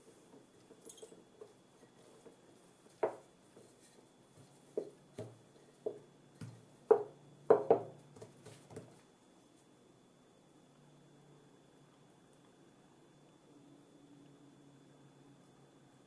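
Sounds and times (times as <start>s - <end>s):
rolling pin knocking on countertop: 3.0s - 3.7s, 4.4s - 9.0s.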